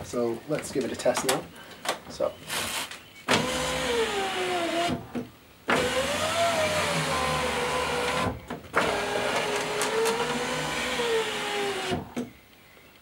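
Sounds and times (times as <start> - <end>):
electric window motor whining: 3.3 - 12.3.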